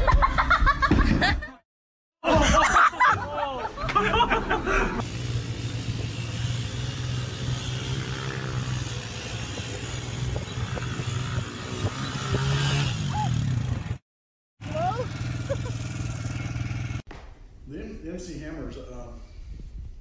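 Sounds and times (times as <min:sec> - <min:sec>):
quad bike engine: 0:04.0 - 0:14.0, 0:14.6 - 0:17.0.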